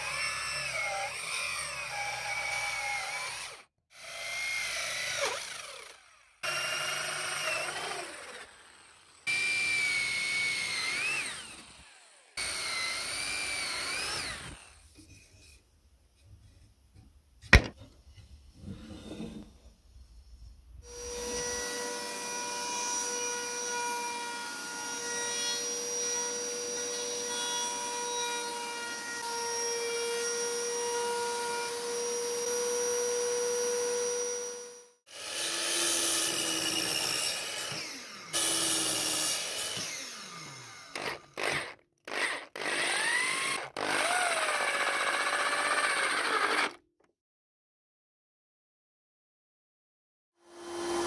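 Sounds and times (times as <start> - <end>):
router whining: 0.0 - 14.8, 31.7 - 46.8
power drill driving screws: 4.6 - 14.8, 35.2 - 46.8.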